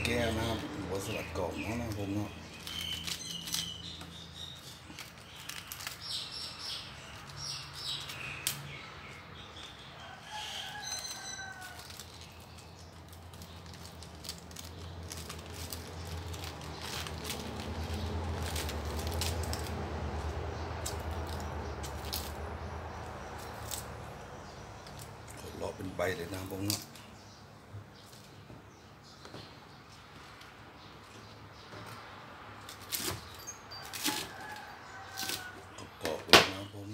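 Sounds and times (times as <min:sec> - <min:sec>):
lettuce leaves tearing: 0:00.0 - 0:08.7, 0:11.0 - 0:24.0, 0:26.2 - 0:27.0, 0:32.7 - 0:35.5
birds chirping: 0:00.0 - 0:36.9.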